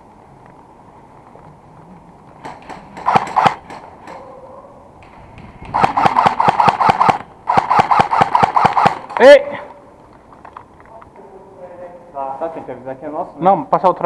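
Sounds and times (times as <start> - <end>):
airsoft gun single shots: 2.5 - 3.8, 5.0 - 9.2
automatic airsoft gun bursts: 2.6 - 3.8, 5.6 - 9.2.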